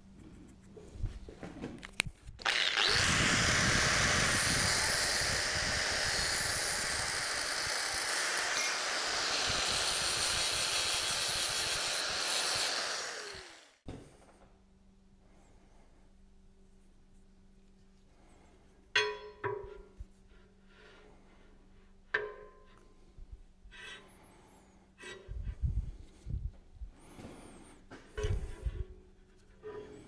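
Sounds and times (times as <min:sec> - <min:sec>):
angle grinder cutting steel bar: 0:02.4 - 0:13.8.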